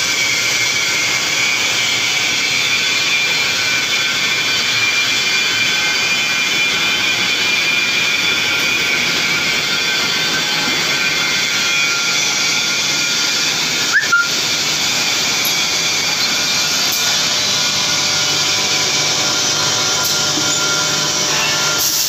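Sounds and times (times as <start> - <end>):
machine hiss and hum: 0.0 - 22.0
sharp machine clacks: 12.9 - 22.0.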